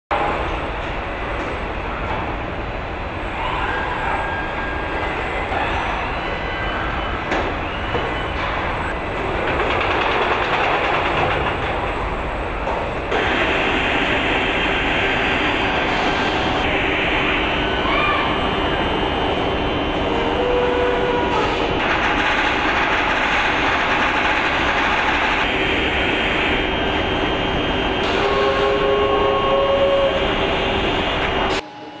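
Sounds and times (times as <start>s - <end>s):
industrial robots running: 8.4s - 16.8s, 21.8s - 26.7s
continuous machine hiss: 8.4s - 31.6s.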